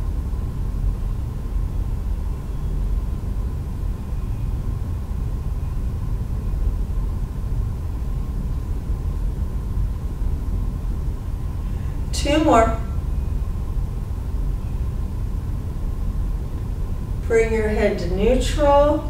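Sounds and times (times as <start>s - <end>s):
faint high hum: 0.0s - 19.0s
low room rumble: 0.0s - 19.0s.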